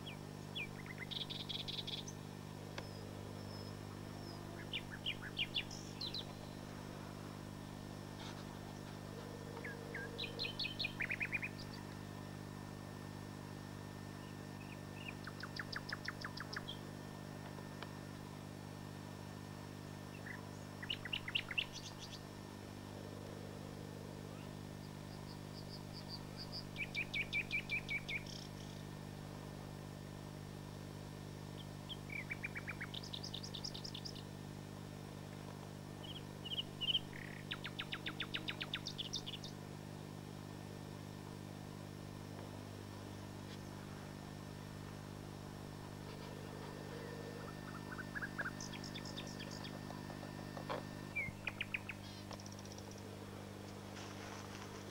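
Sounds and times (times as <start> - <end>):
nightingale singing: 0.0 - 2.2, 2.8 - 6.6, 9.6 - 11.9, 14.2 - 16.8, 20.1 - 22.2, 24.4 - 28.8, 31.6 - 34.3, 36.0 - 39.6, 46.8 - 50.0, 51.1 - 53.0.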